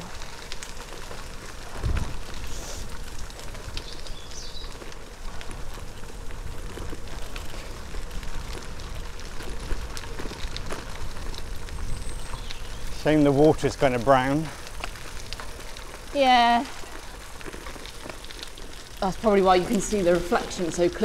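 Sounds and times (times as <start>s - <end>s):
bicycle tyres on gravel: 0.0s - 21.0s
wind on microphone: 1.7s - 2.6s.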